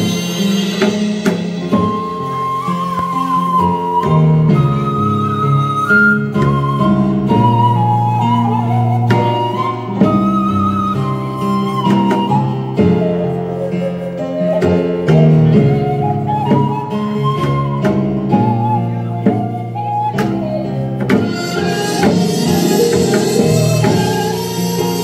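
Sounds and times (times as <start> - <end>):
sharp percussion strikes: 0.0 - 2.5, 21.1 - 25.0
traditional ensemble melody: 0.0 - 25.0.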